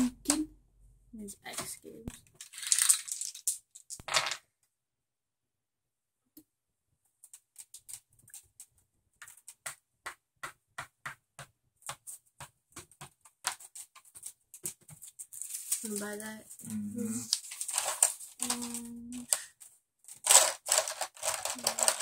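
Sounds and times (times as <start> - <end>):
game pieces rattling: 2.4 - 4.4, 17.3 - 22.0.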